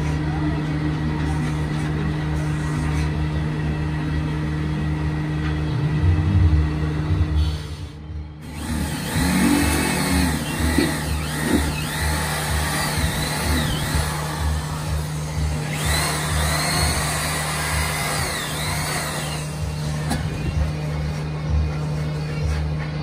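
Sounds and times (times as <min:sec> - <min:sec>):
held drone: 0:00.0 - 0:23.0
low pulsing beat: 0:08.1 - 0:23.0.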